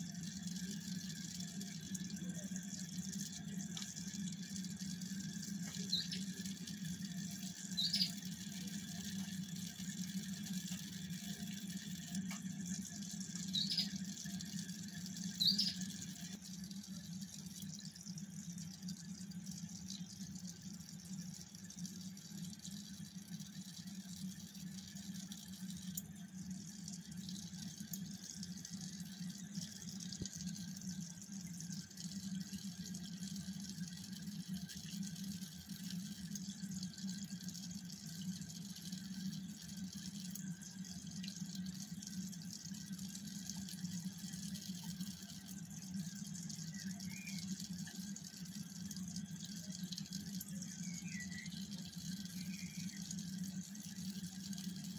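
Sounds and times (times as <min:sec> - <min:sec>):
running water hiss: 0:00.0 - 0:31.1, 0:31.7 - 0:54.9
aquarium pumps humming: 0:00.0 - 0:54.9.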